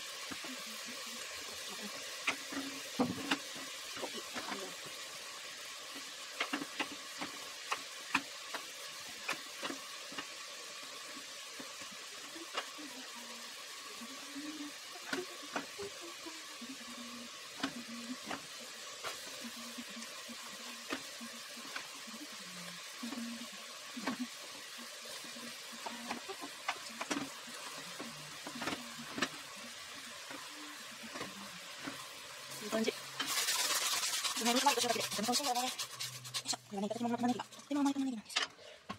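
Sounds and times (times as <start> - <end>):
sizzling hiss: 0.0 - 38.9.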